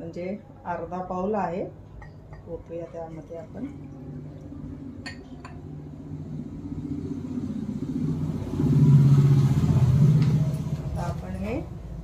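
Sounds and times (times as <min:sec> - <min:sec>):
glass bowl clinks: 0:02.0 - 0:03.4, 0:05.0 - 0:05.6.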